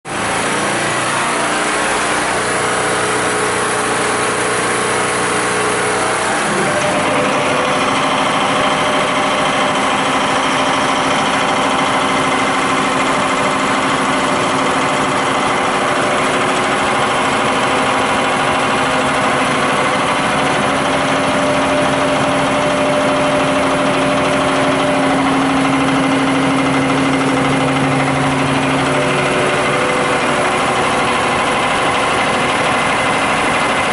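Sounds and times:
air compressor running: 0:00.0 - 0:33.9.

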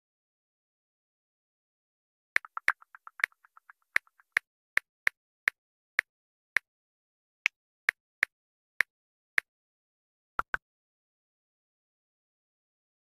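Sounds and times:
phone keyboard clicks: 0:02.4 - 0:04.4.

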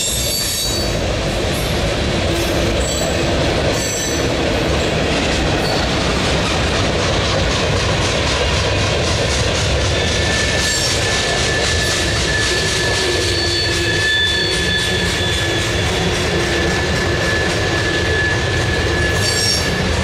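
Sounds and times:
high wheel squeals: 0:00.0 - 0:01.0, 0:10.0 - 0:20.0
clickety-clack at rail joints: 0:00.0 - 0:20.0
train wheels rumbling on rails: 0:00.0 - 0:20.0.

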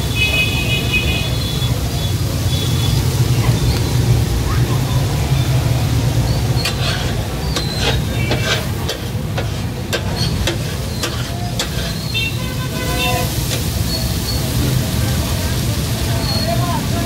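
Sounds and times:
meat sizzling: 0:05.9 - 0:17.0
metal spatulas clacking on griddle: 0:06.5 - 0:12.1.

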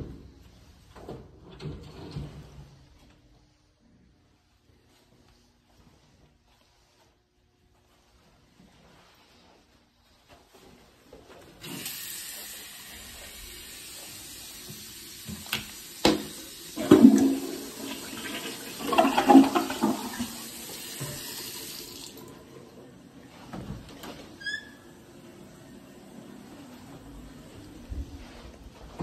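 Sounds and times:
toilet flushing: 0:11.6 - 0:27.8.

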